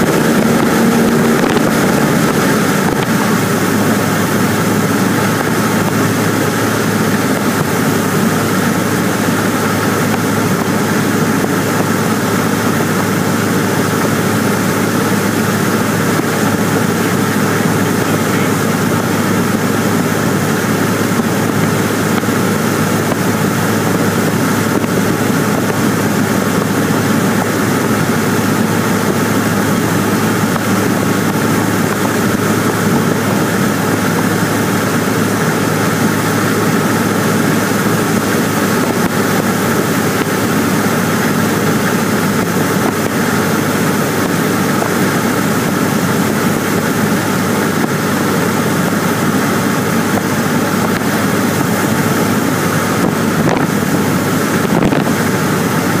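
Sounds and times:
airflow noise over airframe: 0:00.0 - 0:56.0
propeller plane engine in flight: 0:00.0 - 0:56.0.

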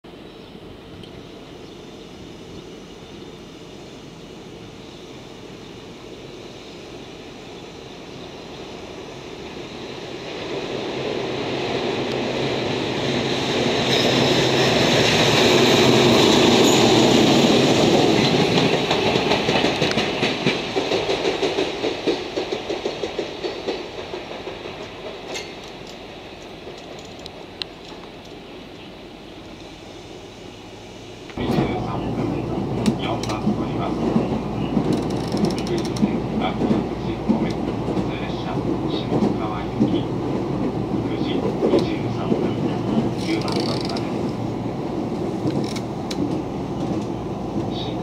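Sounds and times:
wheels clattering over rail joints: 0:18.2 - 0:28.0, 0:32.8 - 0:38.0
electric locomotive running: 0:31.3 - 0:40.1.

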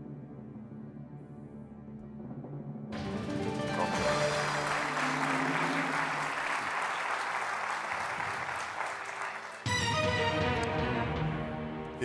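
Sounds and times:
music chord: 0:03.0 - 0:06.4, 0:09.6 - 0:12.0
music cue: 0:03.0 - 0:06.9, 0:09.6 - 0:12.0
audience applauding: 0:03.0 - 0:10.0.

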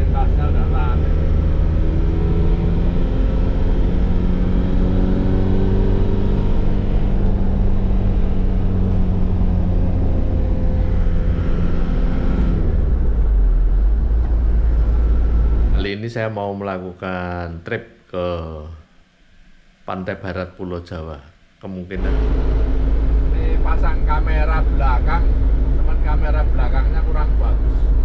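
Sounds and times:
road rumble: 0:00.0 - 0:16.0, 0:22.0 - 0:28.0
engine hum: 0:00.0 - 0:16.3, 0:22.0 - 0:28.0.

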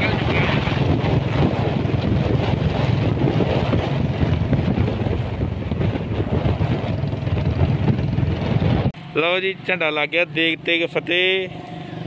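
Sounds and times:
wind buffeting microphone: 0:00.0 - 0:09.0
motorcycle engine running: 0:00.0 - 0:12.0.

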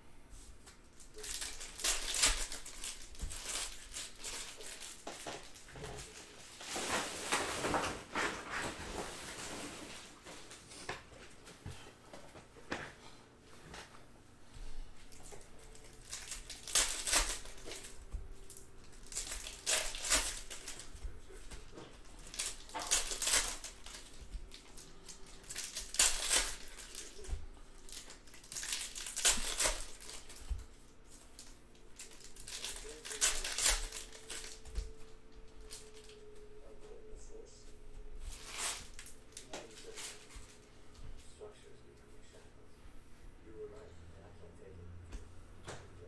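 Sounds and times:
plastic wrappers crinkling: 0:00.6 - 0:10.6, 0:15.0 - 0:36.4, 0:38.2 - 0:40.6.

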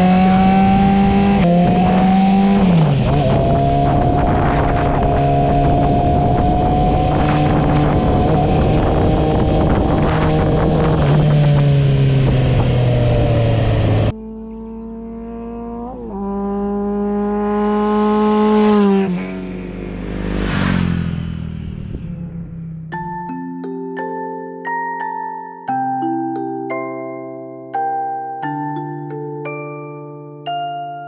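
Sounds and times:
motorcycle engine running: 0:00.0 - 0:23.1
wind rush: 0:00.6 - 0:14.1, 0:19.7 - 0:22.9.

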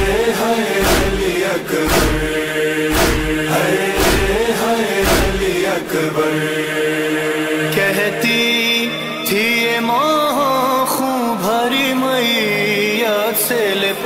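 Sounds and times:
voices chanting a wavering melody: 0:00.0 - 0:14.0
chest-beating thumps: 0:00.8 - 0:05.6.

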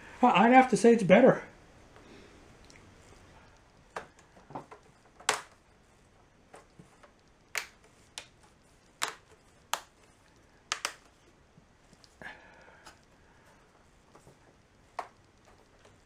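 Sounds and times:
plastic frame clicks and taps: 0:10.7 - 0:11.1.

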